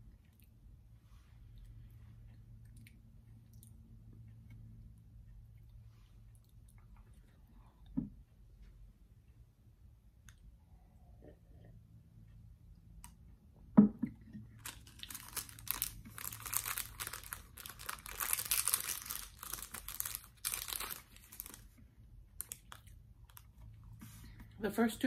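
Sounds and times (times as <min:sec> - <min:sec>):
candy wrapper crinkling: 0:14.5 - 0:23.7.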